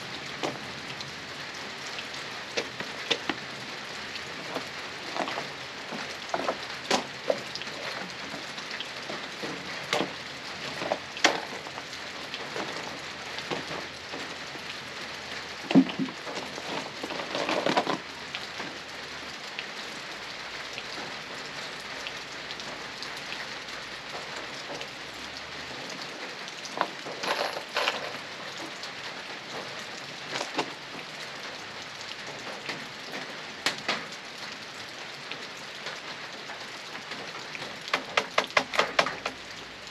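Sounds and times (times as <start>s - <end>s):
steady rain falling: 0.0s - 39.9s
sharp knocks and clatters: 15.7s - 18.0s, 37.9s - 39.4s.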